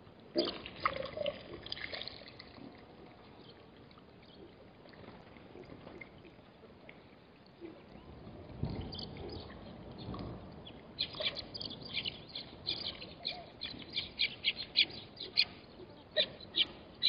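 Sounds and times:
animals splashing through muddy water: 0.4 - 2.8.

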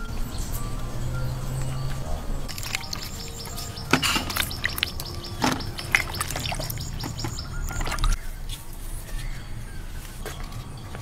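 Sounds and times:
birds chirping: 0.0 - 11.0
water splashing in plastic tub: 2.5 - 8.2.

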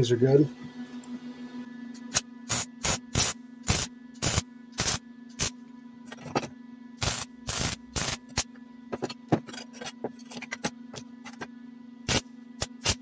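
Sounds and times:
steady low hum: 0.0 - 13.0
welder arc bursts: 2.1 - 5.5, 7.0 - 8.5, 12.0 - 13.0.

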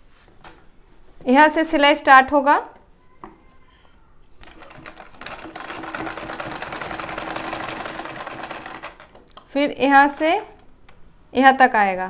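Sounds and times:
sewing machine needle ticking: 4.4 - 9.1.

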